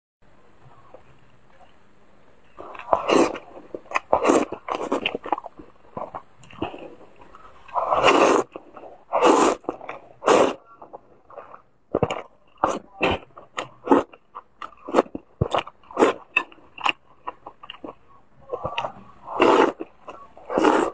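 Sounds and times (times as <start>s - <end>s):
slurping noodles: 2.6s - 7.0s, 7.7s - 10.6s, 11.3s - 14.2s, 14.8s - 17.0s, 18.5s - 20.9s
wet chewing and lip-smacking: 2.6s - 20.9s.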